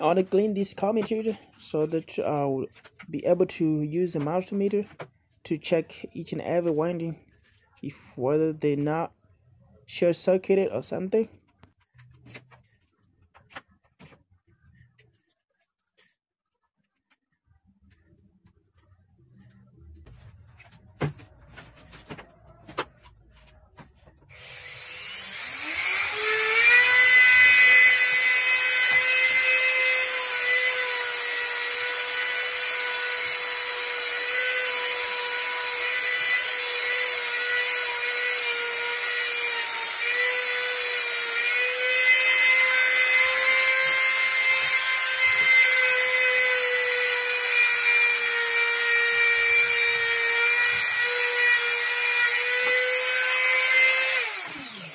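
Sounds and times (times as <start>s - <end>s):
rotary tool whining: 24.3s - 54.9s.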